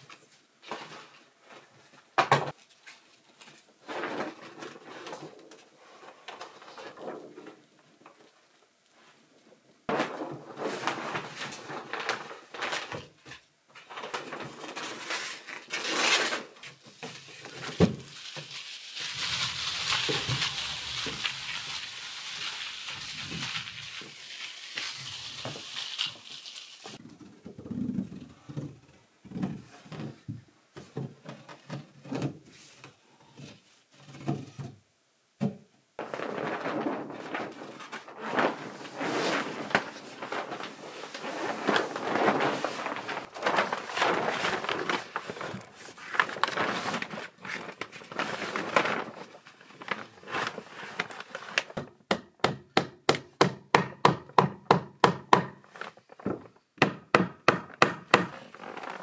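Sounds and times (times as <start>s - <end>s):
plastic sheet rustling: 0.0s - 8.4s, 9.9s - 27.0s, 36.0s - 51.8s, 58.3s - 59.0s.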